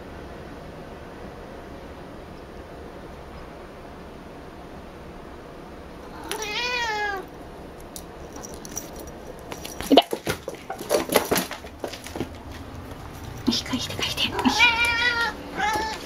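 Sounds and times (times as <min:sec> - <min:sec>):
cat meowing: 0:06.1 - 0:07.3, 0:14.2 - 0:16.0.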